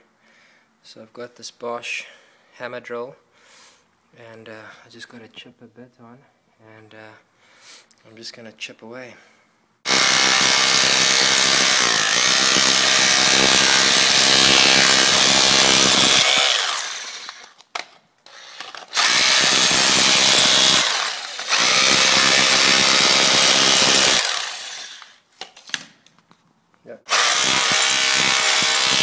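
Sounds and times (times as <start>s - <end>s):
hammer drill chipping tiles: 9.9s - 17.6s, 18.3s - 25.2s, 27.1s - 29.0s.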